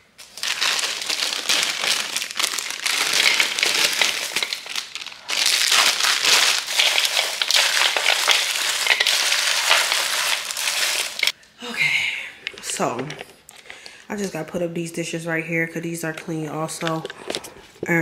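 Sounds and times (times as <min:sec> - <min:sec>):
plastic bag crinkling: 0:00.0 - 0:11.4, 0:12.4 - 0:13.4
wrappers rustling: 0:00.0 - 0:11.4
candies poured into bowl: 0:00.2 - 0:11.4.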